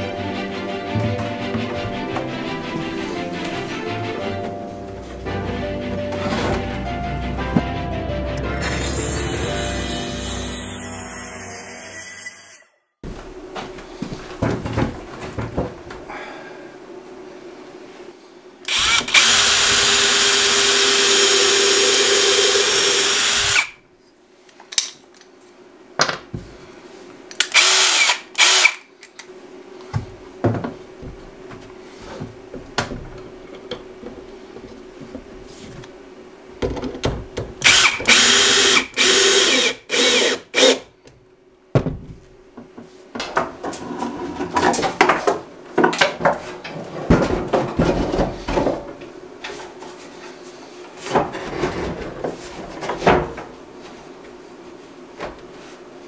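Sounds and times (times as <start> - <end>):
cordless drill driving screws: 18.7 - 23.8, 27.4 - 28.8, 37.6 - 40.8.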